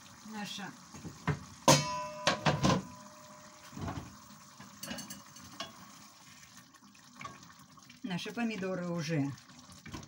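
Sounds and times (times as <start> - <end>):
sauce simmering: 0.0 - 2.2, 2.8 - 10.0
pan lid clanking: 1.6 - 4.1.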